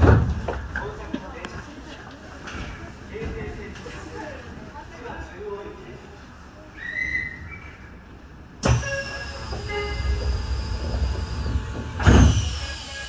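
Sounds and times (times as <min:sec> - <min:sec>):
train noise: 0:00.0 - 0:13.0
faint falling whistle: 0:06.8 - 0:07.9.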